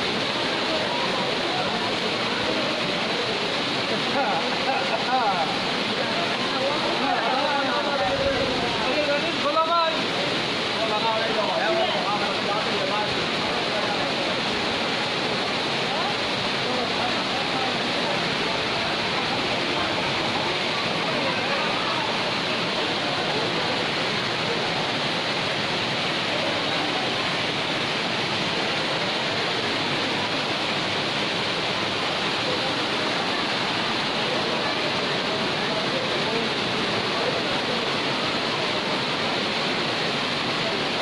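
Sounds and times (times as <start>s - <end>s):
heavy rain: 0.0s - 41.0s
rainwater pouring down steps: 0.0s - 41.0s.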